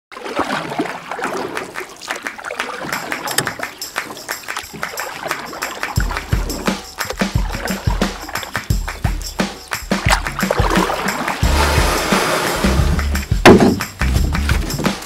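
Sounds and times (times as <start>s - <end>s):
river water splashing: 0.1s - 15.0s
deep pulsing music beat: 6.0s - 15.0s.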